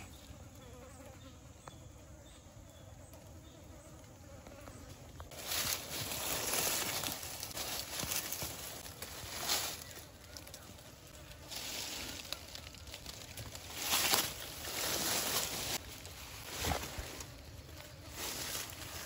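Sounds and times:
rustling and crackling in dry leaves: 0:04.9 - 0:19.0.

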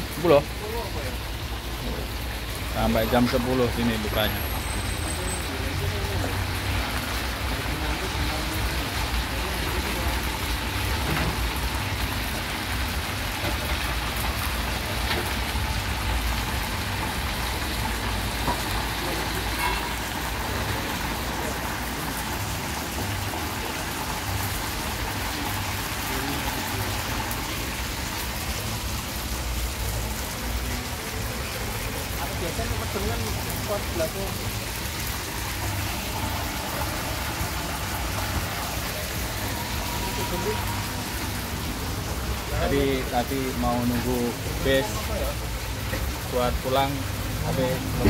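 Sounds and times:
oil sizzling in deep fryer: 0:00.0 - 0:48.0.

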